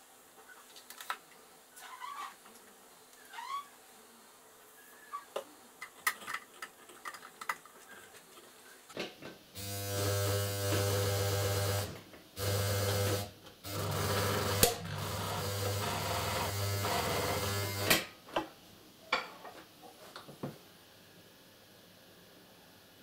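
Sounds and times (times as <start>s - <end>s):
sewing machine motor humming: 9.6s - 18.0s.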